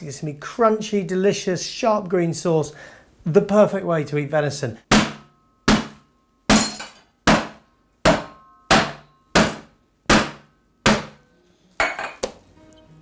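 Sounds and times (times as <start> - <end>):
metal pan pounding meat: 4.9 - 11.2.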